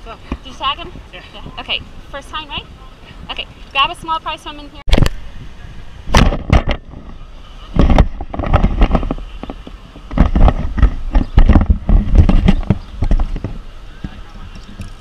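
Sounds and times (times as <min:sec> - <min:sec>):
camera handling knocks and bumps: 0:06.1 - 0:07.0, 0:07.8 - 0:14.2.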